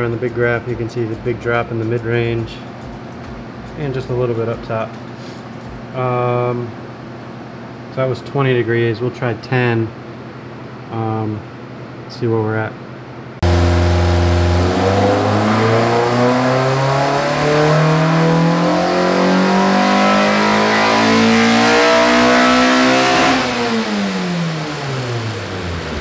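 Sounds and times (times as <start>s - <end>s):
engine revving at full throttle: 13.4s - 26.0s.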